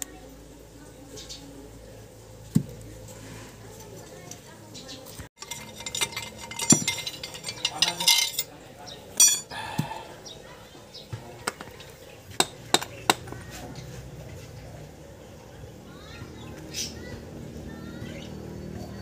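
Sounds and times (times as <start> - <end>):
metal parts clinking: 5.4 - 8.5, 9.2 - 9.5.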